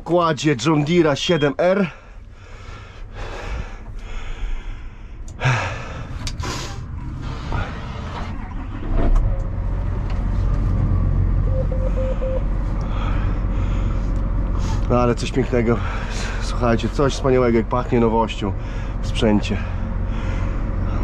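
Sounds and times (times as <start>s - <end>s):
diesel engine starting and idling: 0.1s - 21.0s
short beeps: 11.5s - 12.5s.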